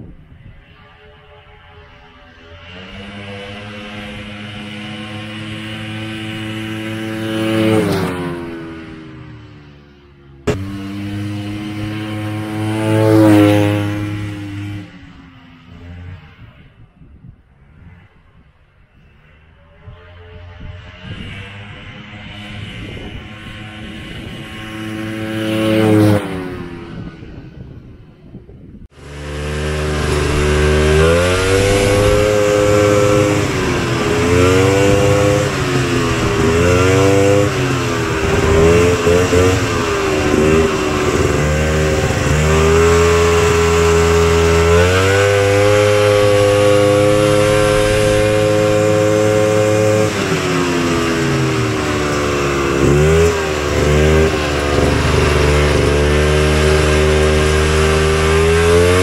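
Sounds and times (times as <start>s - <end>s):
two-stroke engine revving: 2.5s - 9.8s, 10.4s - 16.3s, 20.4s - 27.4s, 28.9s - 59.0s.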